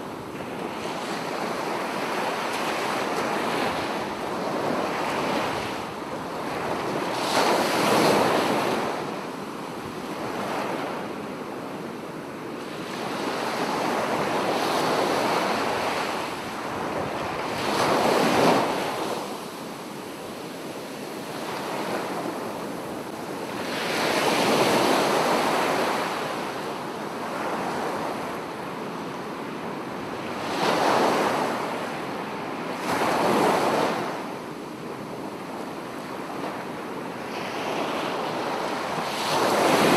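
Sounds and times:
sea waves breaking on beach: 12.6 - 28.7, 37.0 - 39.9.

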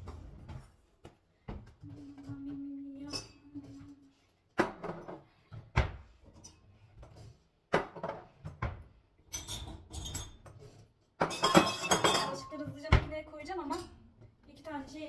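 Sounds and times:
dishes knocking on shelves: 7.7 - 8.8, 11.2 - 13.2
glasses clinking: 9.3 - 10.5, 11.2 - 12.6.

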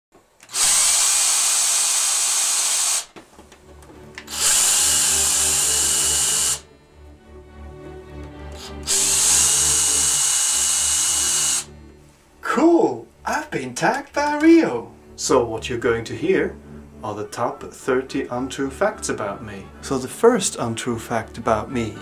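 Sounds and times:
cordless drill whining: 0.4 - 3.2, 4.2 - 6.7, 8.5 - 11.7.

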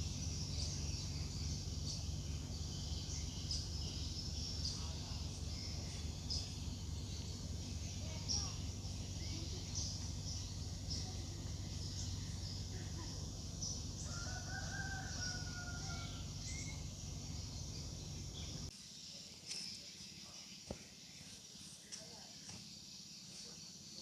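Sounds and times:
steady low rumble: 0.0 - 14.2, 15.9 - 18.7
rooster crowing: 14.0 - 16.6.

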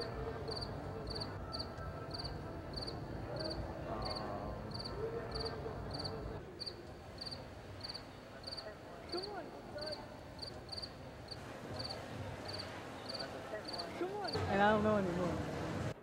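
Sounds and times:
faint chatter of people: 0.0 - 16.0
cricket chirping: 0.5 - 9.2, 9.8 - 11.0.

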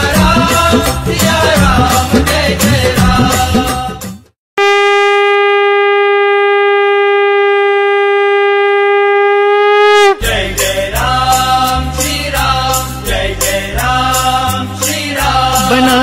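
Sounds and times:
devotional song music: 0.0 - 4.4, 10.1 - 16.0
conch shell blown: 4.6 - 10.3.

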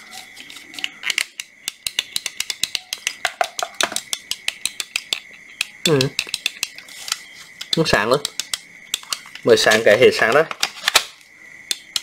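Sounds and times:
work light ticking rapidly: 1.2 - 6.8, 7.6 - 9.5, 11.7 - 12.0.

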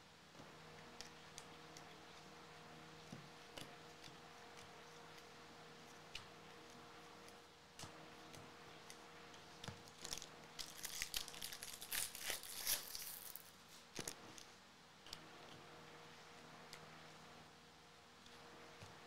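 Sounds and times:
foil wrapper tearing and crinkling: 10.0 - 13.5.

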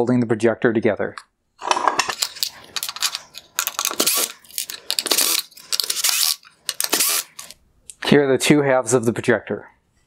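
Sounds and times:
metallic clinks and scrapes: 1.6 - 7.6.

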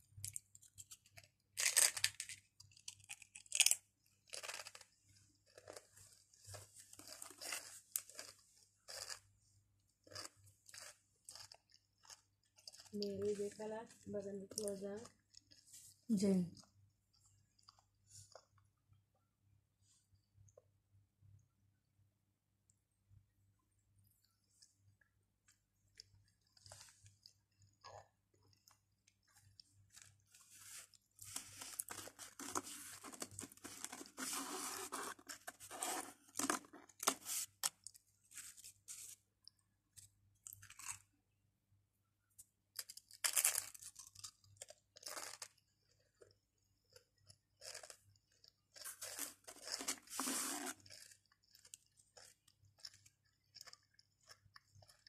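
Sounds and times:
crisps crunching: 1.0 - 9.3, 10.0 - 15.7, 25.9 - 39.0, 40.4 - 41.0, 42.8 - 55.0
chewing clicks: 50.8 - 55.0.

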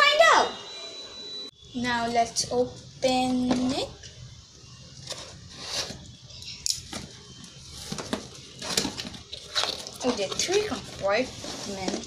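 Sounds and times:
cardboard rustling and scraping: 5.0 - 6.2, 6.9 - 12.0.

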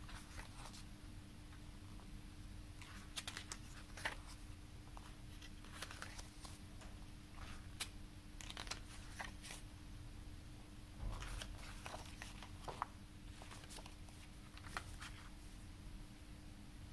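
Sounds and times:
booklet pages turning: 0.0 - 0.8, 2.8 - 6.6, 7.3 - 9.6, 11.1 - 15.3
faint steady hum: 0.0 - 16.9.

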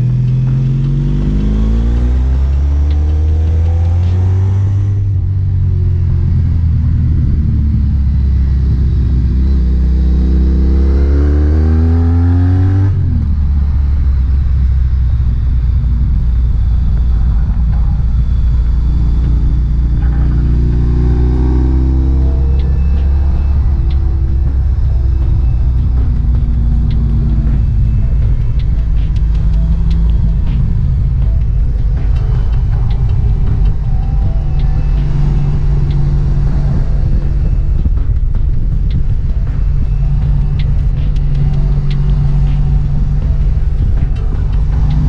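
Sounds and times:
motorcycle engine accelerating: 0.0 - 45.0.

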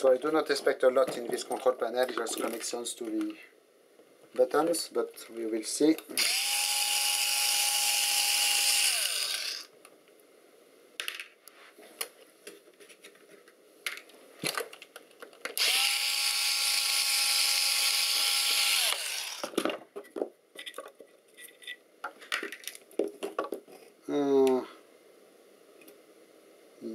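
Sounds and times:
electric screwdriver running: 6.2 - 9.7, 15.6 - 19.6.

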